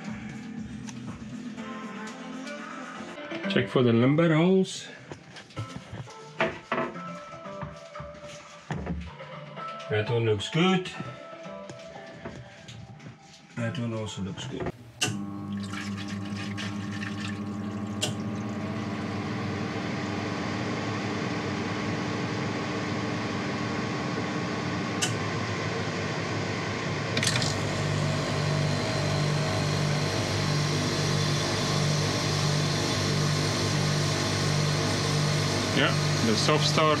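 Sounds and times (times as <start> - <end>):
compressor click: 14.9 - 15.4, 17.9 - 18.4, 25.0 - 25.3
compressor low rumble: 17.4 - 37.0
air conditioner humming: 22.0 - 37.0.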